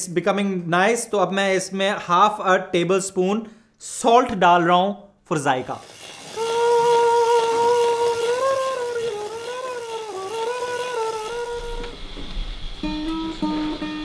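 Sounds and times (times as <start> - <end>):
steady hum: 6.5 - 14.0
classical guitar plucked notes: 9.8 - 14.0.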